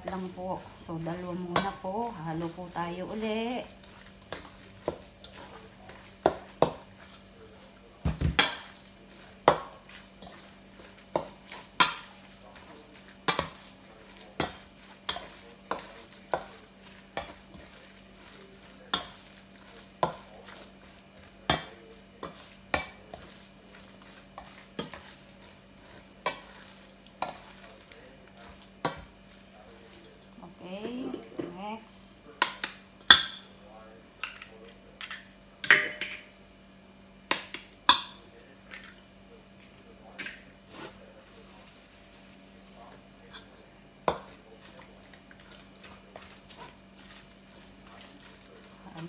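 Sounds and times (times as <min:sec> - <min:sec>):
spoon scraping metal bowl: 0:08.4 - 0:20.7.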